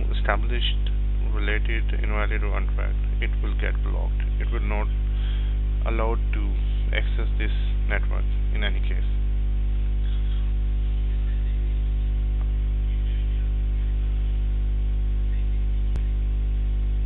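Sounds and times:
electrical mains hum: 0.0 - 17.0.

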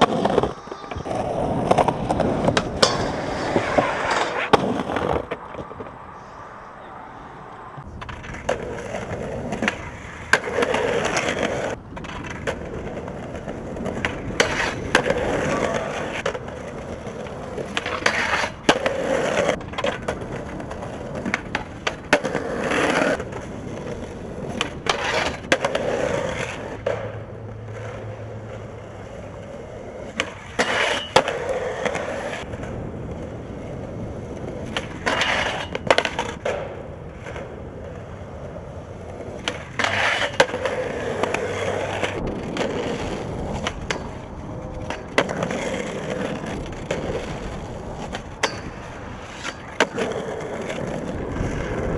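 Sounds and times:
skateboard clattering onto pavement: 0.0 - 6.0, 7.9 - 51.9
skateboard pops and knocks: 0.0 - 6.0, 8.0 - 27.2, 34.3 - 38.0, 38.8 - 51.9
skateboard grinding on metal rail: 0.0 - 6.4, 8.0 - 51.9
skateboard wheels rolling on concrete: 0.0 - 51.9.

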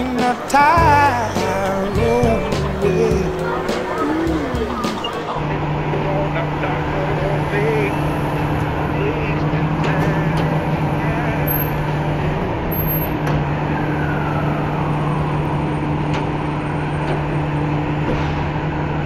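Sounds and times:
diesel engine running: 0.0 - 19.0
street traffic: 0.0 - 19.0.

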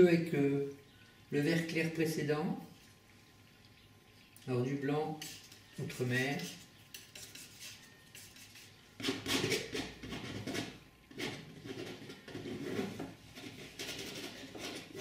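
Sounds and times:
palette knife scraping paint: 5.2 - 15.0.

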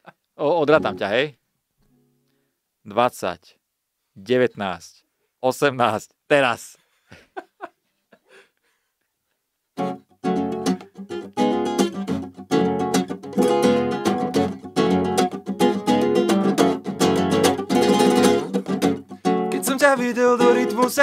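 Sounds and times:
acoustic guitar strumming: 0.7 - 1.2, 9.8 - 21.0.

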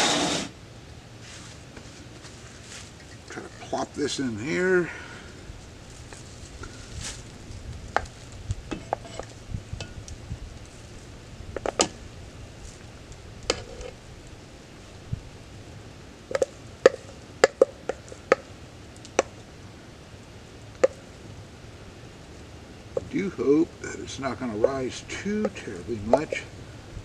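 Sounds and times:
wooden spoon scraping metal bowl: 8.7 - 9.3, 13.5 - 14.0.

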